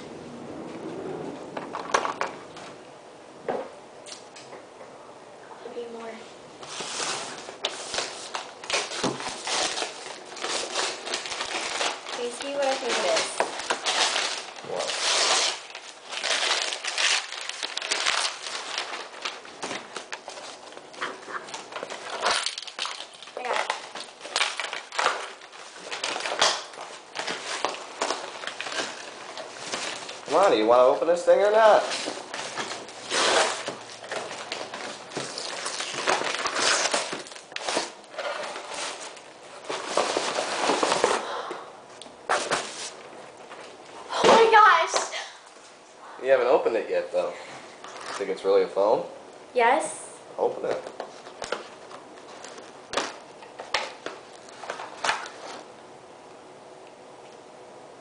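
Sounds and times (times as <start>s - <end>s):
paper being torn and crumpled: 6.7s - 30.6s, 31.6s - 41.1s.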